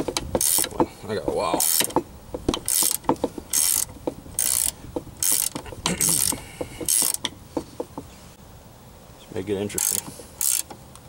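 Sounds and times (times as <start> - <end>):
ratcheting wrench clicking: 0.0 - 0.9, 1.6 - 7.4, 9.8 - 10.8.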